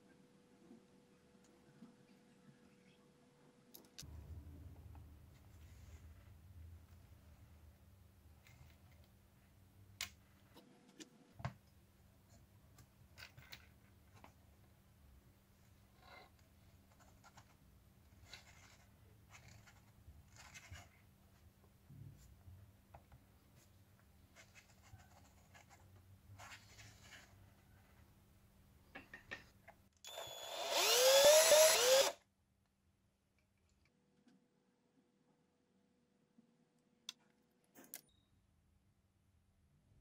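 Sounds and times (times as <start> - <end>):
cordless drill whine: 30.0 - 32.2.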